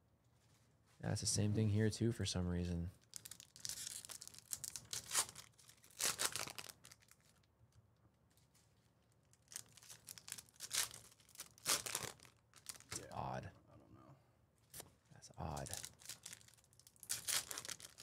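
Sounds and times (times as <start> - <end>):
packaging crinkling and tearing: 3.0 - 7.5, 9.2 - 13.0, 15.6 - 18.0.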